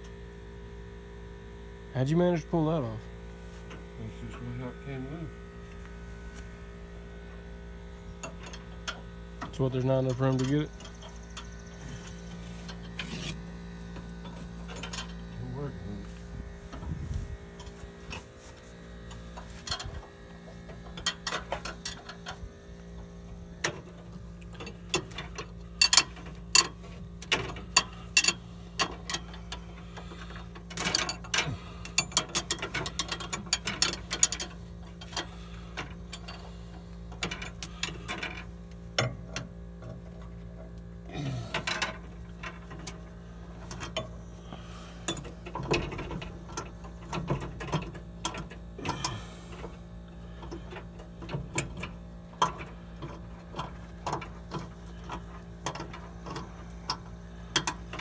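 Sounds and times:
ratchet wrench clicking: 24.4 - 35.4.

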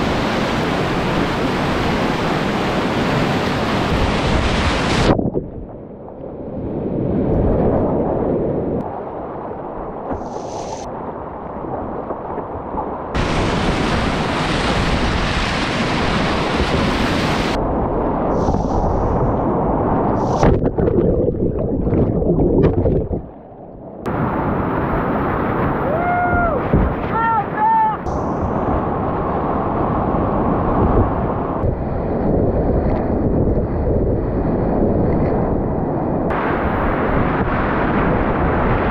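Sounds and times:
rushing whitewater splashing: 0.0 - 5.2, 12.6 - 17.6, 24.1 - 31.6, 36.3 - 38.9
wind buffeting microphone: 0.0 - 27.2, 28.0 - 38.9.

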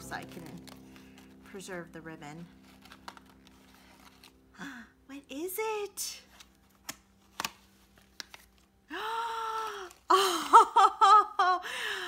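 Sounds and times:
paper box opening: 0.0 - 1.6, 2.4 - 4.5, 6.2 - 8.8.

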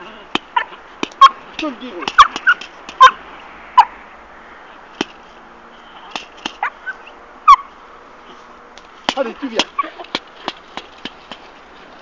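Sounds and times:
sharp cracks of bite sack: 0.3 - 3.0, 6.1 - 6.6, 9.0 - 11.5
puppy yipping: 2.1 - 3.2, 6.6 - 7.7.

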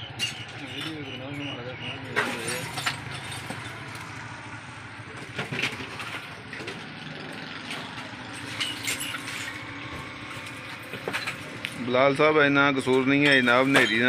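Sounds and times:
glass clinking and scraping: 0.2 - 1.5, 2.1 - 4.0, 7.6 - 11.8, 12.8 - 14.0.

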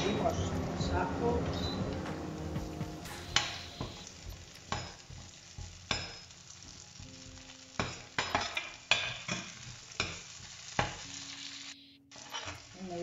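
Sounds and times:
onion and garlic sizzling in oil: 0.0 - 13.0
metal spoon scraping pan: 12.2 - 12.7.

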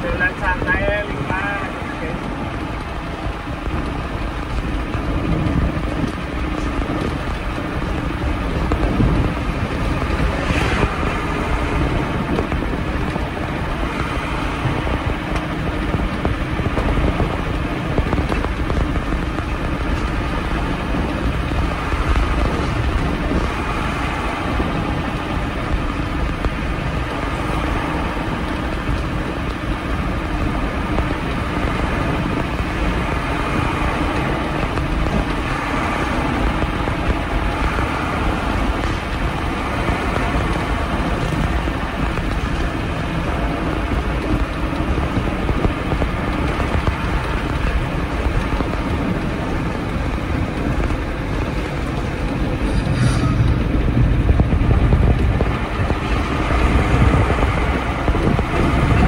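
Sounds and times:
diesel truck engine running: 0.0 - 59.0
road noise: 0.0 - 59.0.

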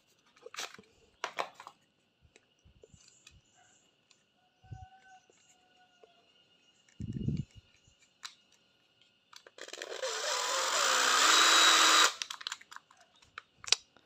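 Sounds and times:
impact driver motor whirring: 9.6 - 12.2.

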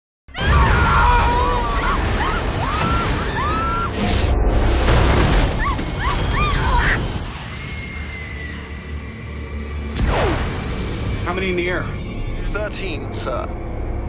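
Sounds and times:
people screaming: 0.3 - 4.1, 5.4 - 9.2.

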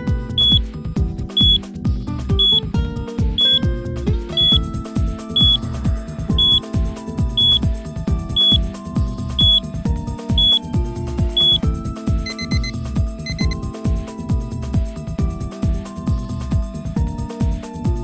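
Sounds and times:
alarm clock beeps: 0.4 - 0.6, 1.4 - 1.6, 2.4 - 2.6, 3.4 - 3.6, 4.4 - 4.6, 5.4 - 5.6, 6.4 - 6.6, 7.4 - 7.6, 8.4 - 8.6, 9.4 - 9.6, 10.4 - 10.6, 11.4 - 13.6
music with heavy bass beat: 0.4 - 0.6, 1.4 - 1.6, 4.4 - 4.6, 5.4 - 5.6, 6.4 - 6.6, 7.4 - 7.6, 9.4 - 9.6, 10.4 - 10.6
timer beeping: 0.4 - 0.6, 1.4 - 1.6, 2.4 - 2.6, 3.4 - 3.6, 4.4 - 4.6, 5.4 - 5.6, 6.4 - 6.6, 7.4 - 7.6, 8.4 - 8.6, 9.4 - 9.6, 10.4 - 10.6, 11.4 - 11.7, 12.3 - 13.6.

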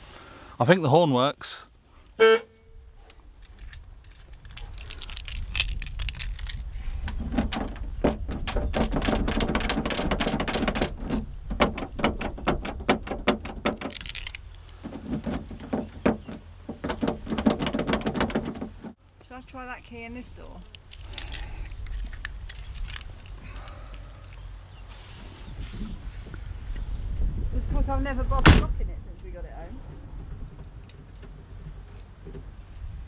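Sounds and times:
keys jangling in a door lock: 3.5 - 15.4, 20.8 - 24.4.

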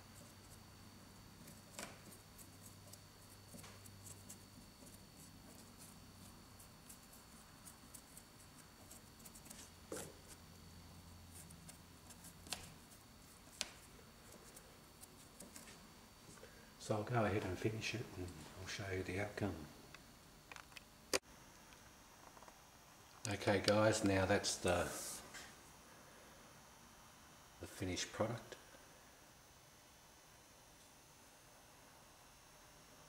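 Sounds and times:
paintbrush scratching and tapping: 1.4 - 10.4, 11.2 - 15.8.

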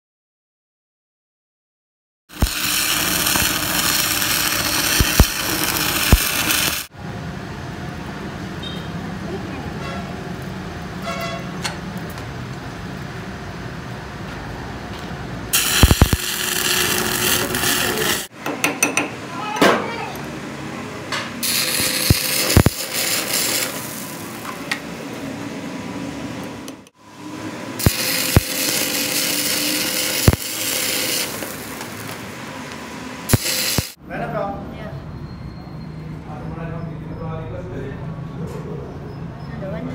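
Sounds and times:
arc welding crackling and hissing: 2.3 - 6.9, 15.5 - 18.3, 21.4 - 25.1, 27.3 - 34.0
sharp clicks: 2.4 - 6.9, 15.6 - 17.7.

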